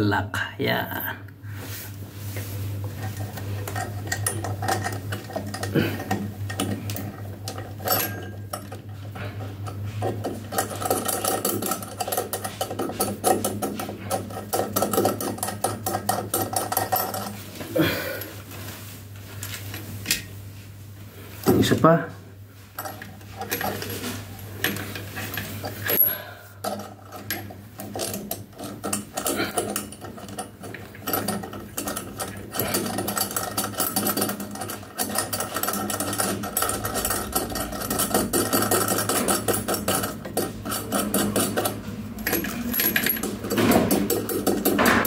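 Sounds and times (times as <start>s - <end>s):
steady low hum: 0.0s - 45.0s
clicking and scraping of hardware: 22.8s - 45.0s.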